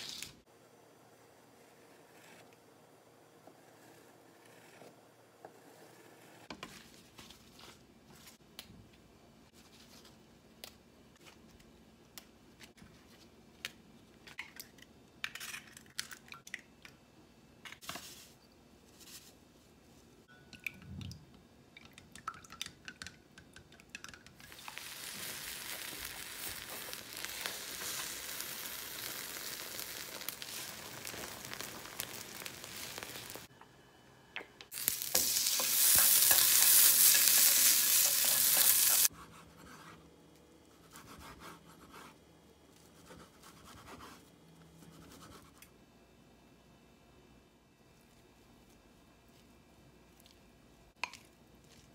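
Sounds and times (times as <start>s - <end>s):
egg sizzling in frying pan: 24.4s - 33.5s, 34.7s - 39.1s.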